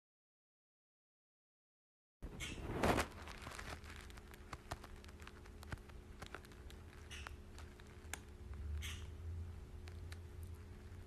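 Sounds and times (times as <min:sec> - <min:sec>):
parrot nibbling plastic pen: 0:03.2 - 0:11.0.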